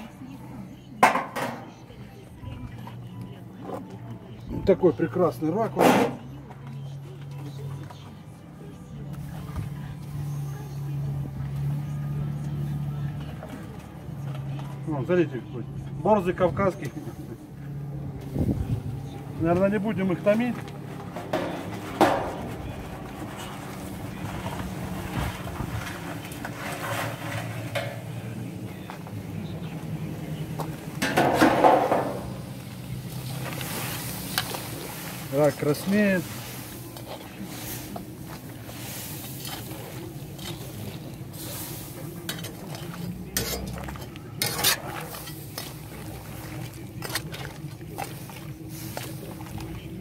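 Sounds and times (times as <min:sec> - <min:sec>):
water boiling and bubbling: 0:28.8 - 0:50.0.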